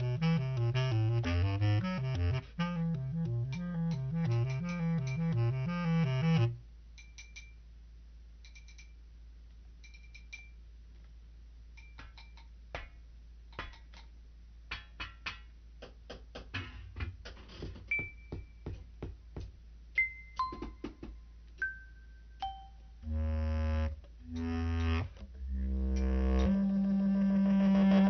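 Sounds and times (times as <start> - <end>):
music with stepping bass line: 0.0 - 6.6
low hum: 22.7 - 28.0.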